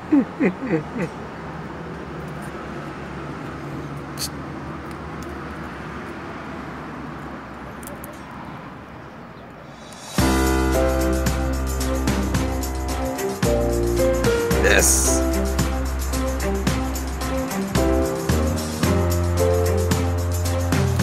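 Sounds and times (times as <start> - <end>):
low street rumble: 0.0 - 21.0
background music: 10.0 - 21.0.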